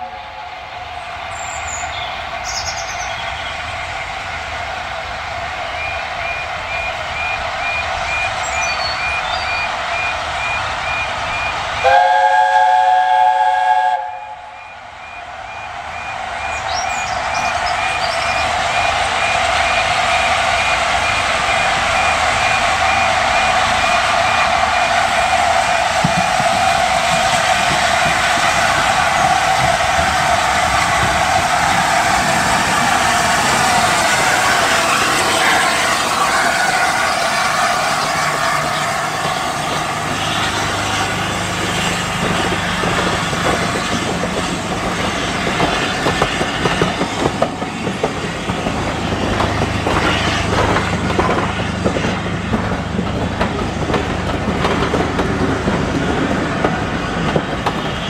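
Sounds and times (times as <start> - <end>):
steam locomotive chime whistle: 0.0 - 0.6, 5.7 - 29.8
steam locomotive passing: 0.0 - 58.0
level crossing alarm beeping: 5.8 - 12.0, 14.2 - 25.3.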